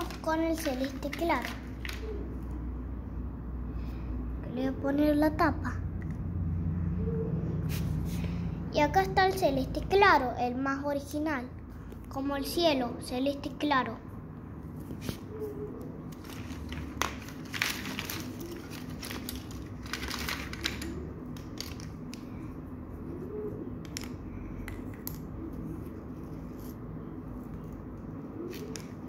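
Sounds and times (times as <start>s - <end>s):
markers rustling: 0.0s - 2.6s, 14.6s - 23.2s, 23.8s - 29.0s
plastic markers clicking: 16.8s - 22.3s.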